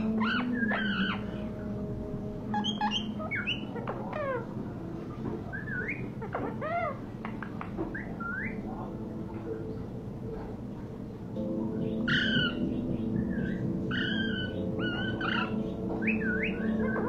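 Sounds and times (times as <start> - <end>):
steady low hum: 0.0 - 17.0
parakeet whistling and chirping: 0.1 - 1.4, 2.5 - 4.5, 5.4 - 8.8, 11.8 - 17.0.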